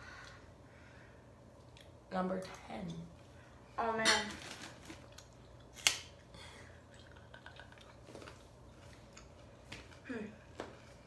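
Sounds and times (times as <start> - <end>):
chewing: 5.0 - 10.0.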